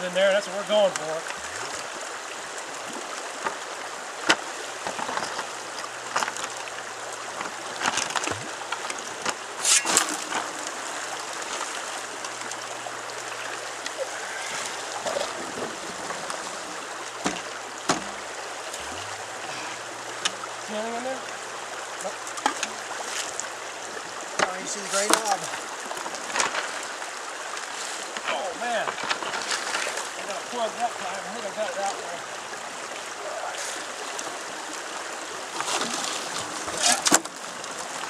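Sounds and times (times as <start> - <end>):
shallow river running over gravel: 0.0 - 38.0
splashes and knocks of rock: 2.9 - 19.2, 24.3 - 30.7, 35.5 - 38.0.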